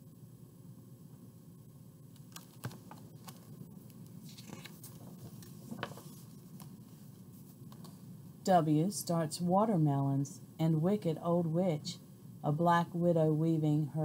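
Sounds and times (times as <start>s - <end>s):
book pages turning: 2.2s - 8.0s.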